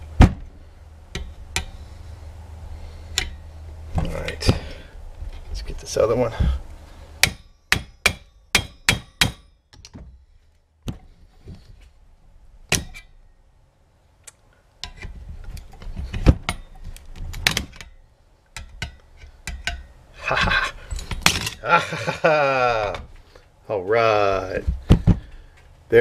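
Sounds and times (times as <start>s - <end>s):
metallic clicks and knocks: 14.3s - 20.0s.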